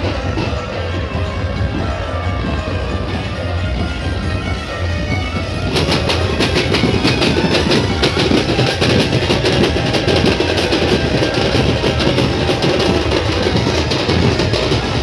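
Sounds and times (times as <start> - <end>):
group drumming: 5.4 - 15.0.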